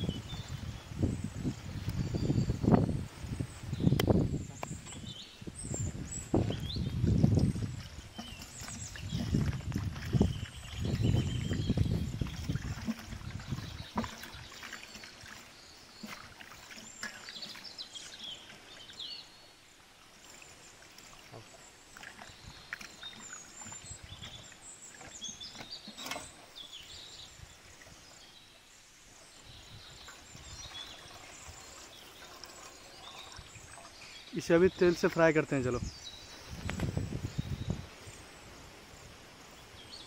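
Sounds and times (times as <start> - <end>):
water sloshing and squelching: 3.4 - 35.6
water pouring: 5.9 - 19.2, 29.5 - 35.6.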